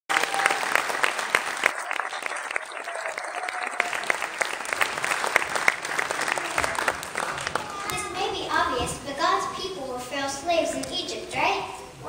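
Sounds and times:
audience applauding: 0:00.1 - 0:08.1.

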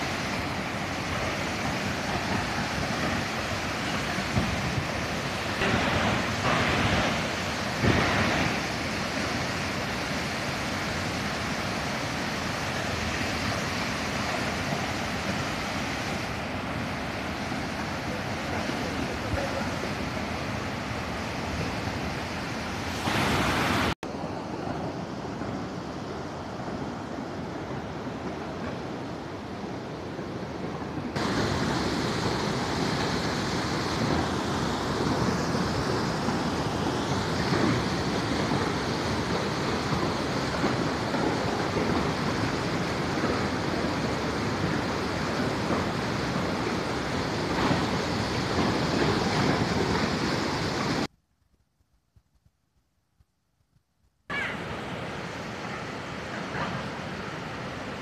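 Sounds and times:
waterfall rushing: 0:00.0 - 0:51.1, 0:54.3 - 0:58.0.

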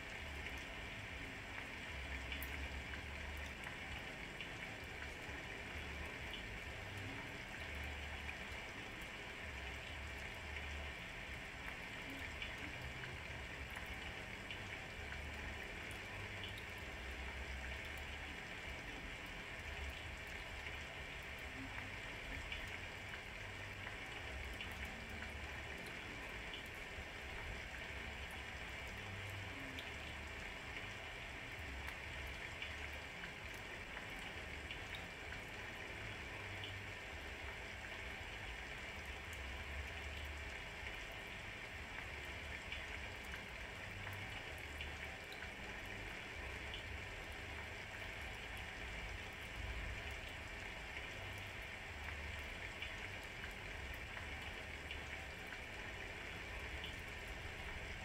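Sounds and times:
steady rain hiss: 0:00.0 - 0:58.0
drip ticks: 0:01.6 - 0:05.2, 0:05.8 - 0:41.4, 0:42.0 - 0:47.0, 0:47.6 - 0:57.8.

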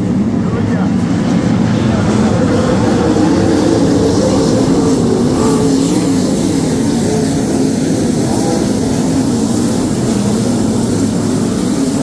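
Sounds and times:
race car engines at high revs: 0:00.0 - 0:12.0.

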